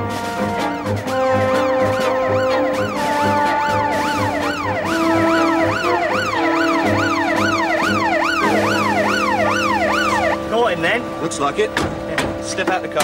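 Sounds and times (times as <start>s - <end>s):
background music with beat: 0.0s - 10.8s
police siren yelping: 0.6s - 10.6s.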